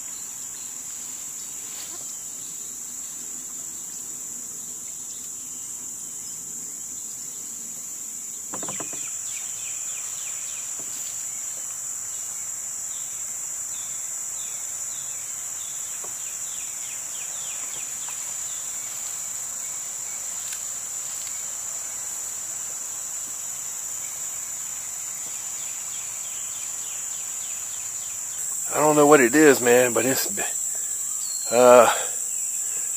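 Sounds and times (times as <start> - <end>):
cicadas buzzing: 0.0 - 32.9
knock: 8.5 - 9.0.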